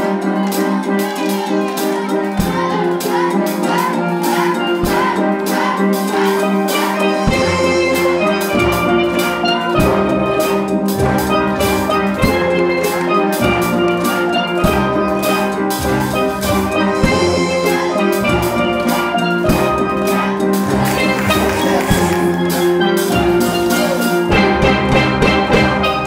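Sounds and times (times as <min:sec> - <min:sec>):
drums: 0:00.0 - 0:26.0
steel pans playing: 0:00.0 - 0:26.0
deep bass notes: 0:14.7 - 0:25.7.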